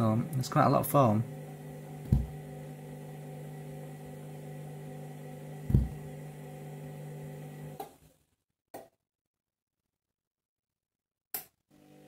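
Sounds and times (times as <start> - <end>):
washing machine motor hum: 0.0 - 8.0, 11.7 - 12.0
dull thumps in washing machine: 2.0 - 2.4, 5.6 - 6.1.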